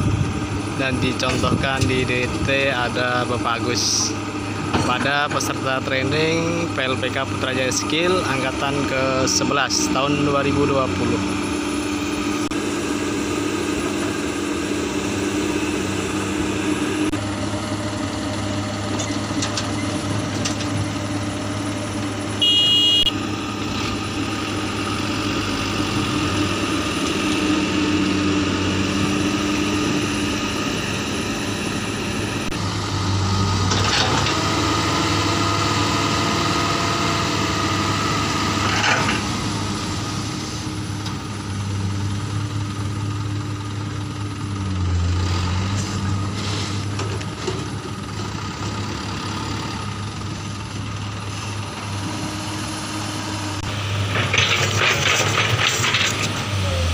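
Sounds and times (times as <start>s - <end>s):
diesel engines running: 0.0s - 56.9s
high beep: 22.4s - 23.1s.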